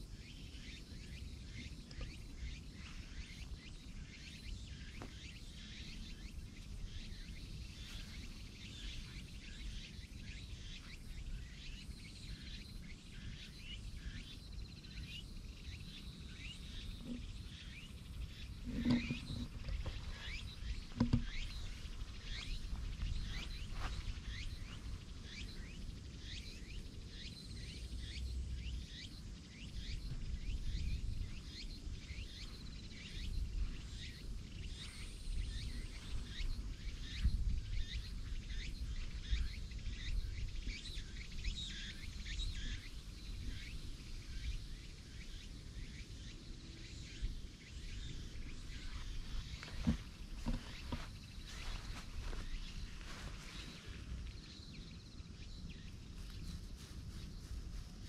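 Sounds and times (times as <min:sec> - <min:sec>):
small birds chirping: 0:00.0 - 0:58.0
wind rumbling on microphone: 0:15.4 - 0:27.3, 0:28.0 - 0:45.4.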